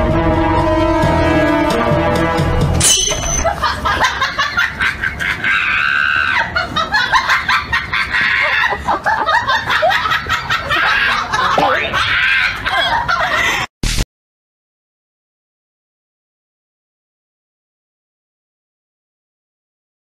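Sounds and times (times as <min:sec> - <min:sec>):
background music: 0:00.0 - 0:03.6
people laughing and shrieking: 0:03.4 - 0:13.7.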